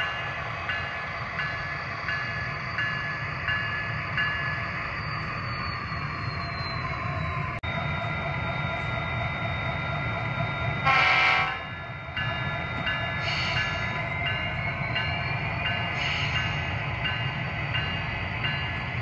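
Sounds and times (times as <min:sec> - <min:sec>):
train horn blast: 0:10.8 - 0:11.7.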